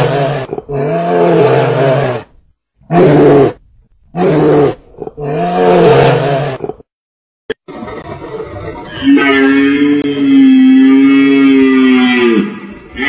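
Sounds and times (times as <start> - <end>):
deep animal roars: 4.2 - 6.8, 9.0 - 13.0.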